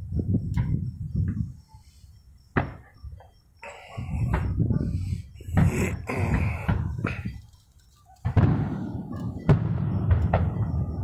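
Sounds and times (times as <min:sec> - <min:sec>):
fireworks bangs: 0:02.5 - 0:03.3, 0:03.9 - 0:07.4, 0:08.2 - 0:11.0.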